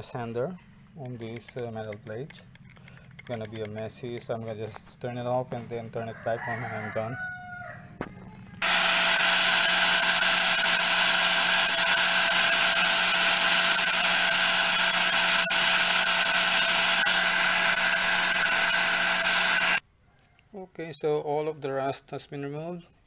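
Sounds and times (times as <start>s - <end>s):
angle grinder sanding rust off metal: 8.6s - 19.8s.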